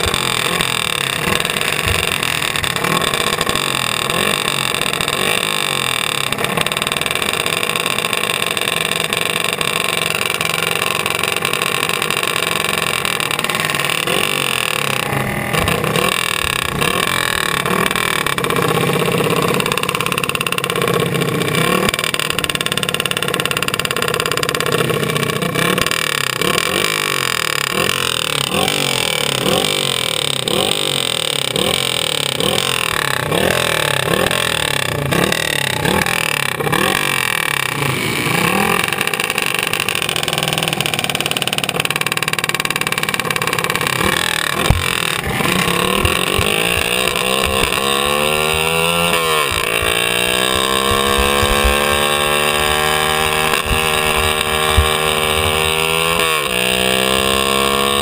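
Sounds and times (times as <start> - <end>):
chassis knocks: 0.0 - 4.9, 43.5 - 56.9
go-kart engine revving: 0.0 - 58.0.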